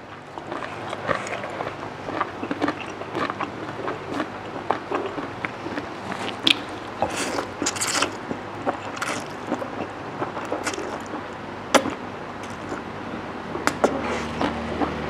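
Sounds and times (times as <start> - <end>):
wet chewing with smacking: 0.1 - 12.8, 13.6 - 15.0
noodles slurped: 4.9 - 12.9, 13.6 - 15.0.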